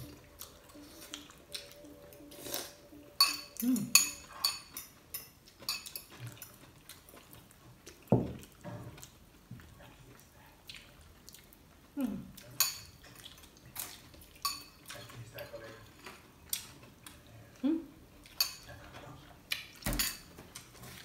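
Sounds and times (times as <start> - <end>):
wet eating sounds: 0.0 - 2.9, 3.6 - 15.3
fork clinking on glass bowl: 3.2 - 6.6.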